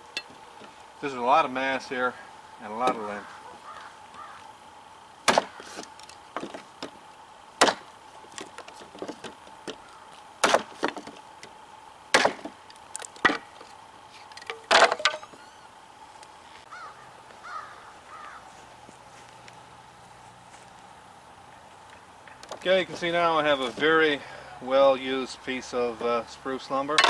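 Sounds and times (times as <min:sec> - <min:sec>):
knife chopping wood: 0:05.2 - 0:07.0, 0:07.6 - 0:09.8, 0:10.4 - 0:11.1, 0:12.1 - 0:12.6.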